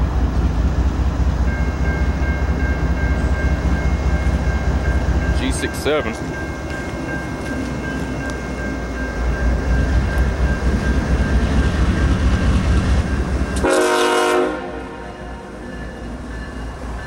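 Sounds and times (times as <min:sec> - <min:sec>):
diesel locomotive engine rumble: 0:00.0 - 0:17.0
locomotive horn blast: 0:13.6 - 0:15.6.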